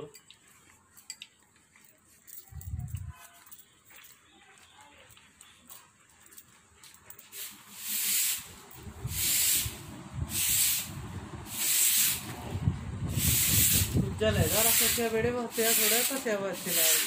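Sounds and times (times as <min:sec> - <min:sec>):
broom sweeping concrete floor: 0:07.2 - 0:17.0.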